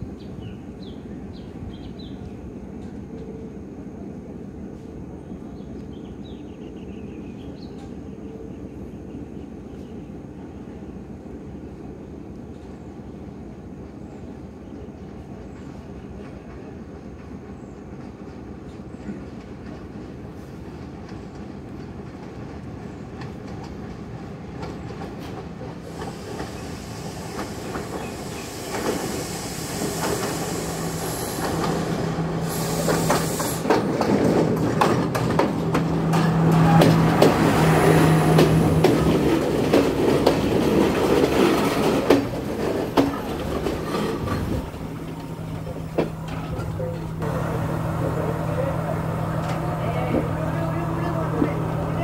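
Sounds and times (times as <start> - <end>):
diesel train passing: 0.0 - 52.0
wheels clacking over rail joints: 15.1 - 52.0
low engine hum: 44.2 - 52.0.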